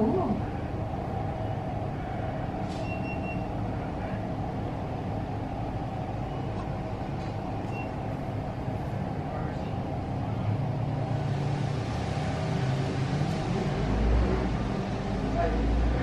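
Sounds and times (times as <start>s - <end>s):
car wash machinery drone: 0.0s - 16.0s.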